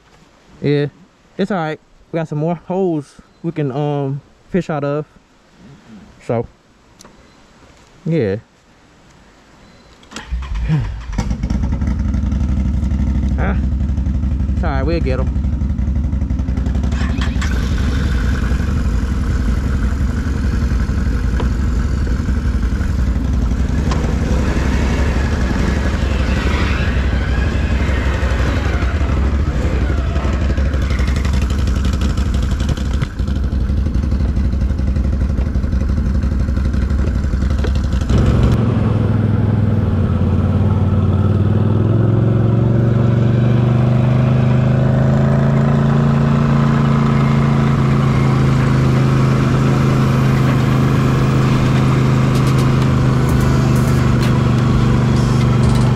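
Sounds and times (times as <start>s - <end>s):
atv engine idling and revving: 10.3s - 55.9s.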